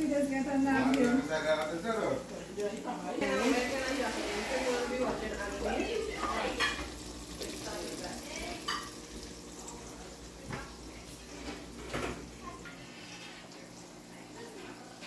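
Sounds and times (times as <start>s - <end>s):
fish frying in hot oil: 3.2s - 14.6s.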